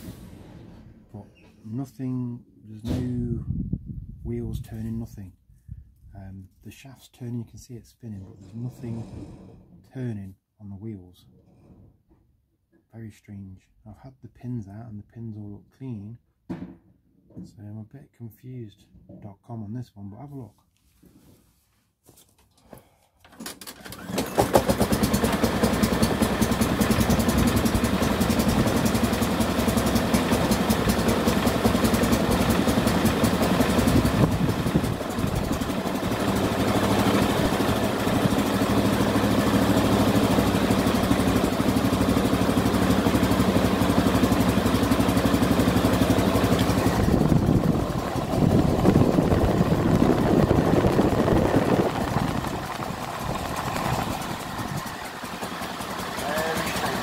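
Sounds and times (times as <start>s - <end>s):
lawnmower engine running: 23.4s - 57.0s.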